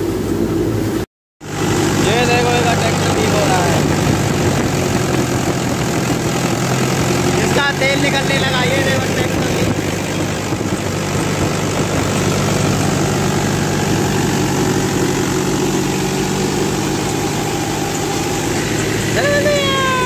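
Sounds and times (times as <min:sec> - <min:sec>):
tractor diesel engine running: 0:00.0 - 0:20.0.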